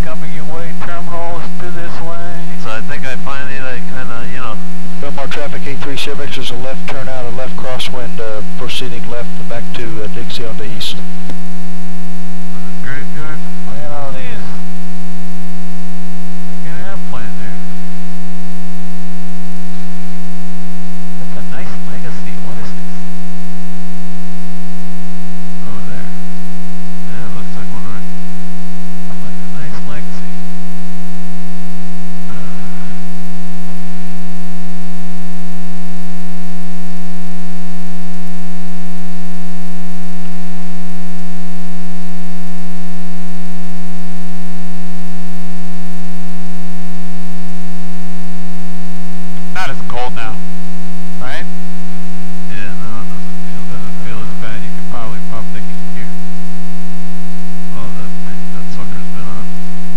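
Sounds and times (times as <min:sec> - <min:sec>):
faint voice: 0:00.0 - 0:11.0, 0:12.5 - 0:14.6, 0:16.6 - 0:17.6, 0:21.3 - 0:22.8, 0:25.6 - 0:26.1, 0:27.1 - 0:28.0, 0:29.1 - 0:30.4, 0:32.3 - 0:33.0, 0:49.6 - 0:50.4, 0:51.2 - 0:51.5, 0:52.5 - 0:56.1, 0:57.7 - 0:59.5
electrical buzz: 0:00.0 - 0:59.9.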